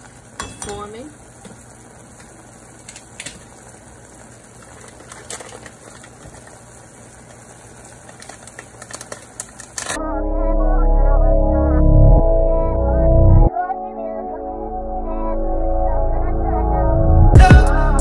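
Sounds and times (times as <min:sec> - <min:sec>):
sauce bubbling and sizzling in pot: 0:00.0 - 0:10.0.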